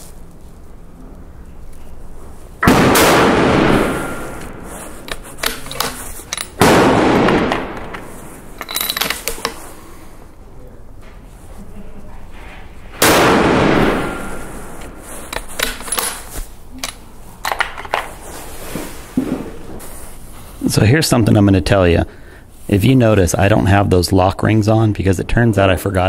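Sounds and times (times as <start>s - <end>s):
rifle shots echoing: 2.6s - 4.7s, 6.6s - 8.3s, 13.0s - 14.8s.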